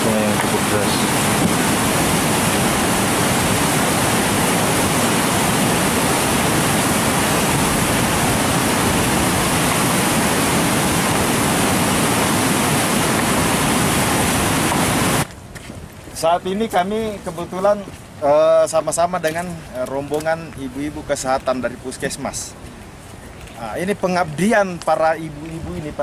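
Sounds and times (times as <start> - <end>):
river rushing over boulders: 0.0 - 15.3.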